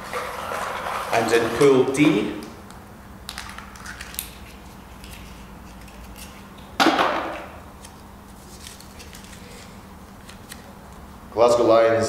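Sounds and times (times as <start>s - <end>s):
low room hum: 0.0s - 12.0s
paper crinkling: 7.8s - 10.7s.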